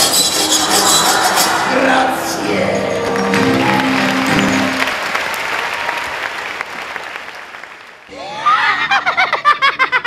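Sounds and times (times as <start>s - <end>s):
closing music: 0.0s - 5.4s
loud laughing voices: 0.4s - 2.3s, 8.1s - 10.0s
audience applauding: 0.5s - 8.1s.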